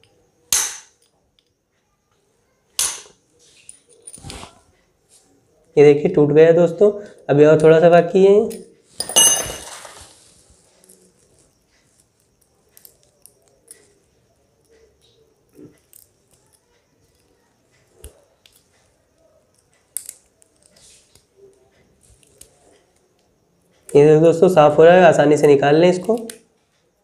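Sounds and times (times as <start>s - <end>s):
small metal tool clicks and scrapes: 19.5s - 21.3s.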